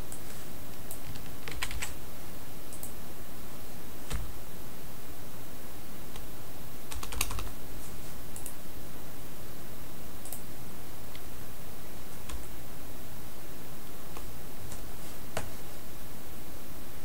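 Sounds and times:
background hiss: 0.0s - 17.0s
computer keyboard keystrokes: 0.9s - 1.9s, 6.9s - 7.5s.

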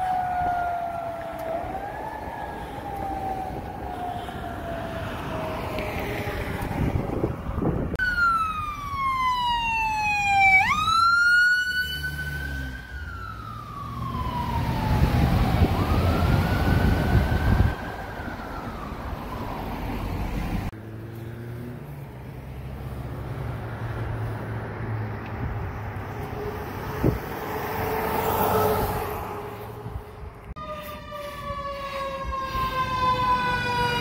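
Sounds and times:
electronic siren wailing: 8.0s - 20.0s, 30.6s - 34.0s.

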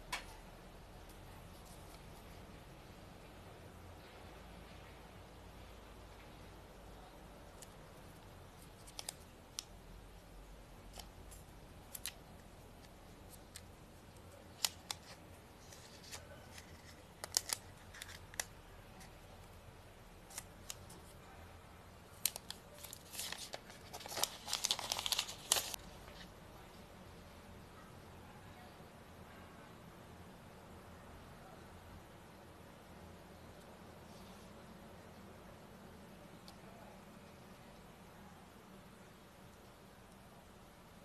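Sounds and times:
plastic film crinkling: 7.6s - 9.7s, 10.9s - 19.2s, 22.1s - 26.2s.

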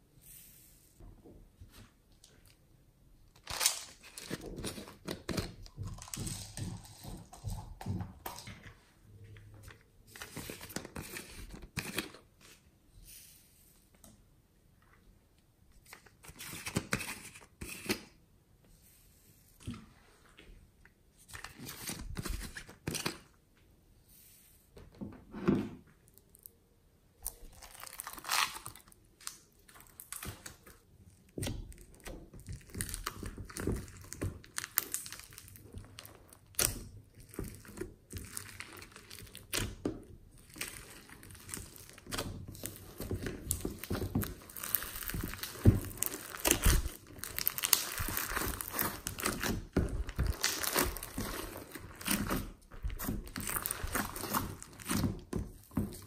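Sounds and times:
slime crackling and squishing: 27.2s - 56.0s.

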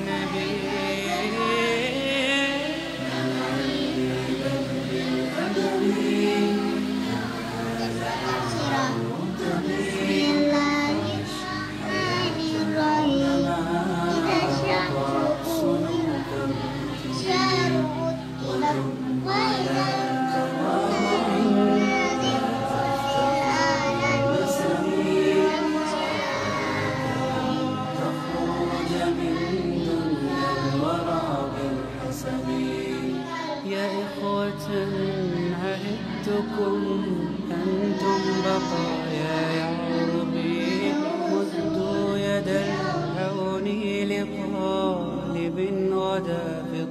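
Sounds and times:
choral singing: 0.0s - 46.9s.

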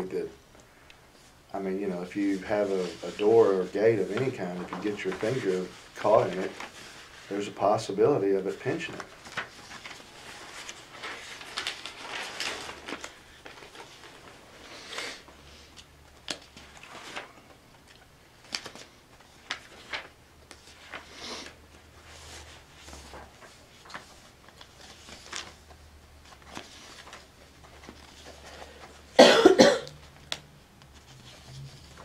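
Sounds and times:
faint clicks and rustles: 8.6s - 14.6s, 15.7s - 29.1s
person coughing: 29.2s - 30.0s.

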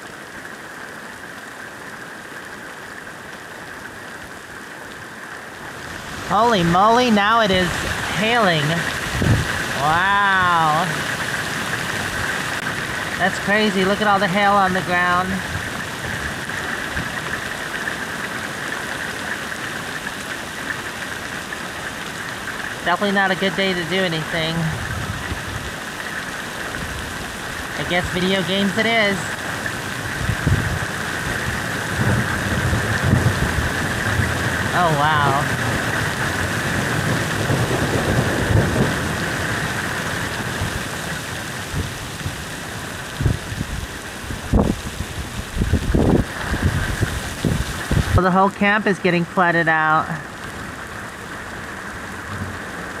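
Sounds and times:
heavy rain and hail falling: 0.0s - 53.0s.

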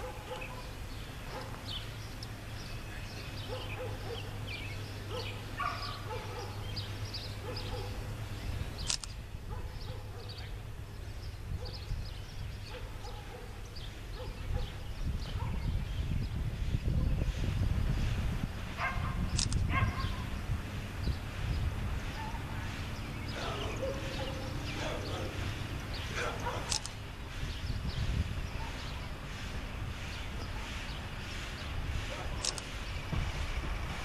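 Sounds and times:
songbirds chirping and singing: 0.0s - 34.0s
sharp click: 8.8s - 9.2s, 19.3s - 19.6s, 32.4s - 32.7s.

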